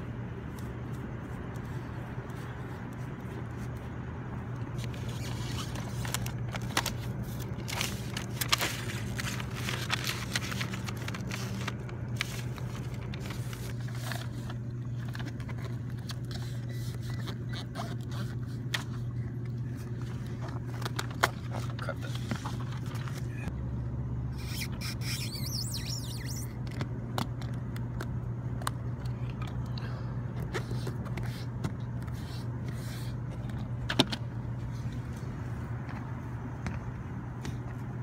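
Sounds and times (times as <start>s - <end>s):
low machine hum: 0.0s - 38.0s
paper rustling and peeling: 0.3s - 23.5s.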